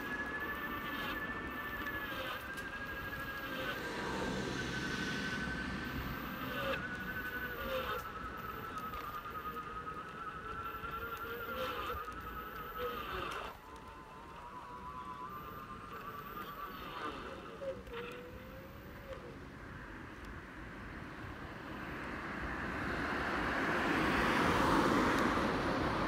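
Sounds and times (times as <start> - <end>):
electric motor whining: 0.0 - 19.4.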